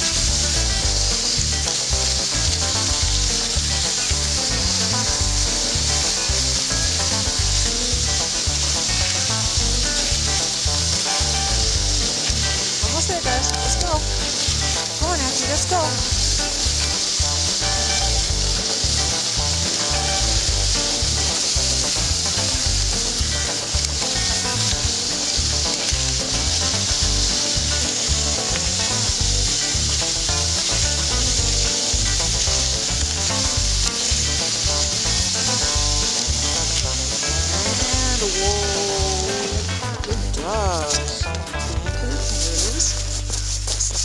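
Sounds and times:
sled runners hissing over snow: 0:00.0 - 0:44.0.

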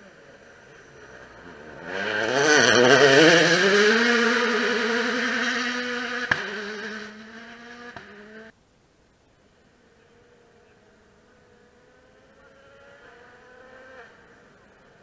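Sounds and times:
rally car engine passing: 0:00.0 - 0:08.5, 0:09.8 - 0:15.0
sharp crack: 0:06.2 - 0:06.6.

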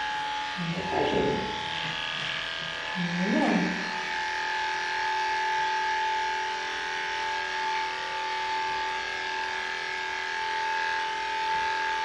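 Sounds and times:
electric clippers humming: 0:00.0 - 0:12.0.

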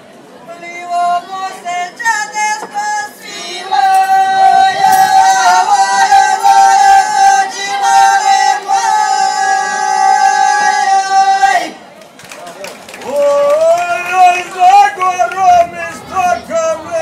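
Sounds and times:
folk group singing held note: 0:00.9 - 0:11.8.

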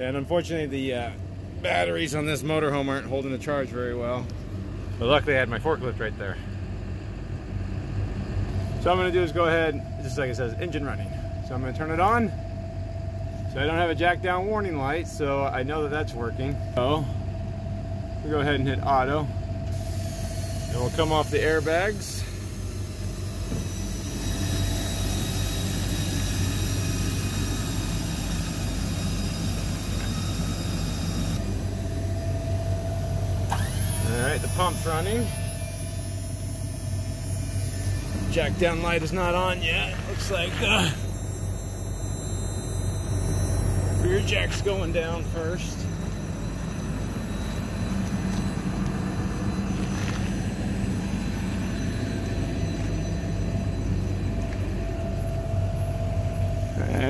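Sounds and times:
hydraulic pump humming: 0:00.0 - 0:57.0
motorhome engine idling: 0:20.7 - 0:57.0.

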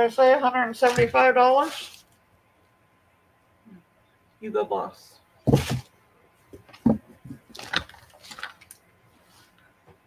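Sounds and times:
knocks scuffs and rustles: 0:00.8 - 0:02.1, 0:05.4 - 0:08.5
thump of objects put down: 0:05.5 - 0:05.9.

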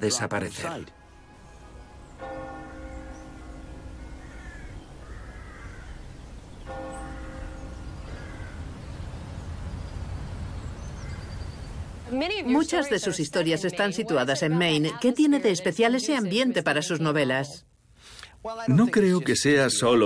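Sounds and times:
bell tolling: 0:00.9 - 0:05.2, 0:06.7 - 0:08.8
crows cawing: 0:02.1 - 0:09.5, 0:10.8 - 0:11.7.

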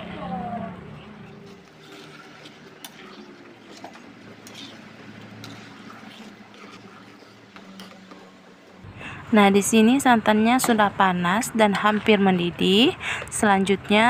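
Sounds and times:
liquid swishing in a pan: 0:01.5 - 0:08.8.

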